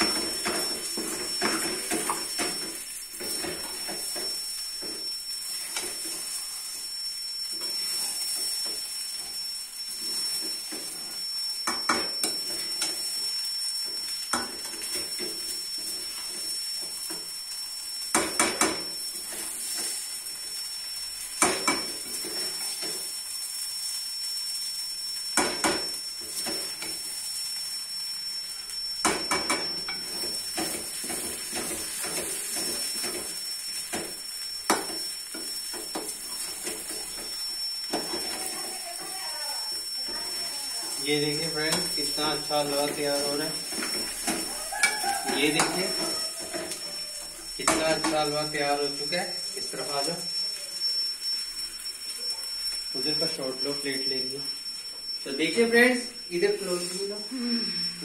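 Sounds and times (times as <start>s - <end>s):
steady high hiss: 0.0s - 58.0s
metal spoon stirring and scraping: 41.0s - 46.8s.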